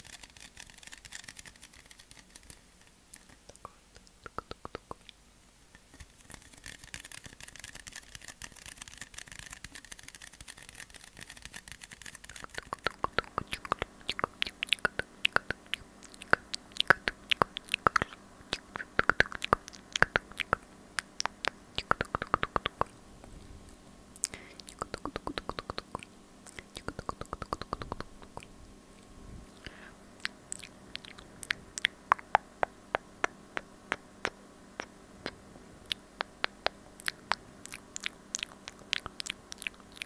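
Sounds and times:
soft steady hiss: 0.0s - 40.0s
wet mouth clicks and smacks: 3.2s - 5.2s, 12.3s - 22.9s, 24.2s - 28.5s, 29.6s - 40.0s.

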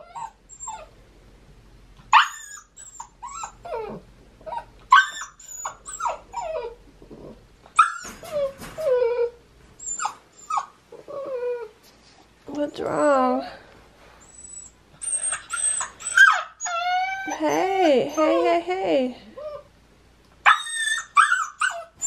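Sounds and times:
puppy whining and yelping: 0.0s - 1.0s, 2.0s - 11.8s, 14.2s - 18.6s, 19.3s - 19.8s, 20.4s - 22.0s.

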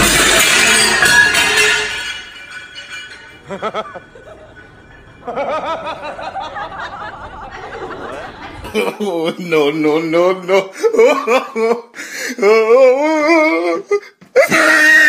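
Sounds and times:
punching bag crashing: 0.0s - 3.2s.

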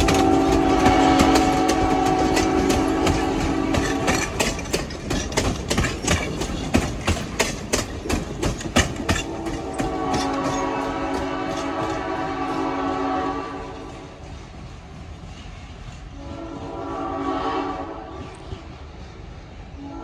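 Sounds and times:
locomotive horn: 0.0s - 4.4s, 8.9s - 14.0s, 16.1s - 18.4s, 19.8s - 20.0s
train wheels clacking on rails: 0.0s - 20.0s.

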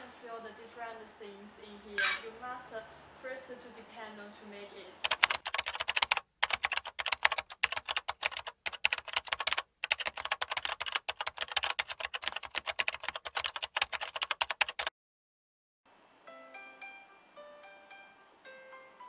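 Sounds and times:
fast typing on keyboard: 5.0s - 14.9s.

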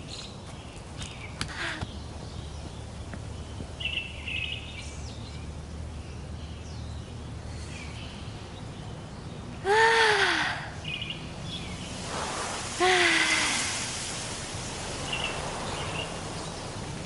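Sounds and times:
faint bird chirps: 14.6s - 16.8s.

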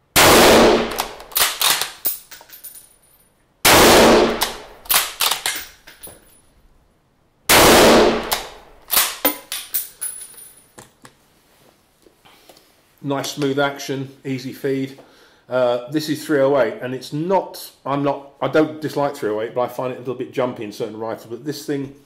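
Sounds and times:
rifle shot: 0.2s - 2.0s, 3.6s - 5.6s, 7.5s - 9.3s
rifle bolt clicking: 0.9s - 2.1s, 4.4s - 5.7s, 8.2s - 9.7s.

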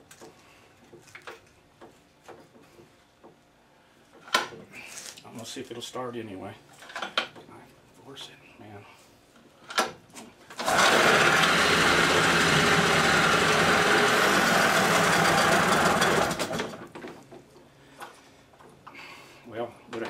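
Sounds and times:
outboard motor pull-started and running: 10.5s - 17.0s.

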